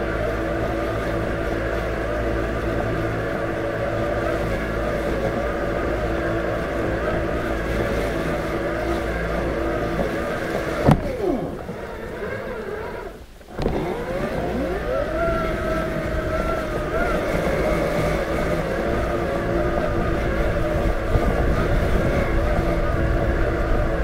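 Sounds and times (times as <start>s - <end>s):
electric motors whirring: 0.0s - 24.0s
mower click: 10.8s - 11.8s.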